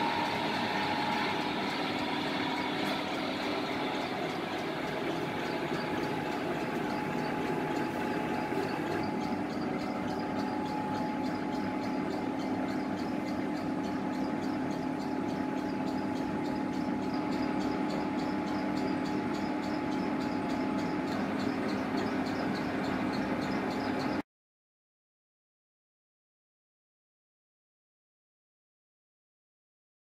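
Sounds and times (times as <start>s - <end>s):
lathe mechanical hum: 0.0s - 24.2s
light fast ticking: 0.0s - 24.2s.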